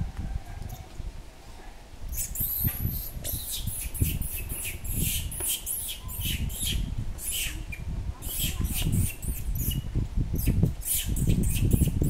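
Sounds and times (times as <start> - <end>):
infant monkey squealing: 2.1 - 9.8.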